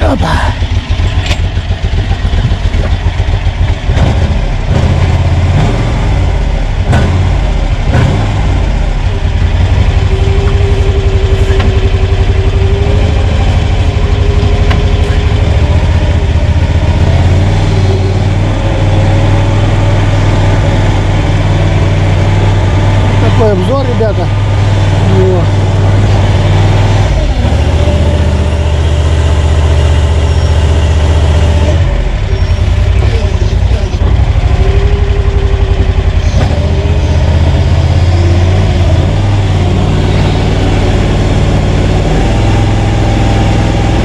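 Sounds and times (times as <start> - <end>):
petrol engine running: 0.0 - 44.0
steady whine: 6.2 - 44.0.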